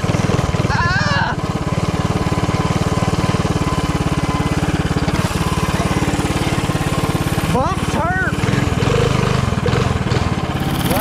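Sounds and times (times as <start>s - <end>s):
small engine running: 0.0s - 11.0s.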